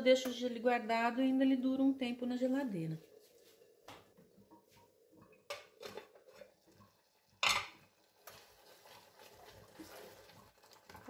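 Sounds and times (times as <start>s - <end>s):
lid clattering on hob: 7.4s - 7.8s.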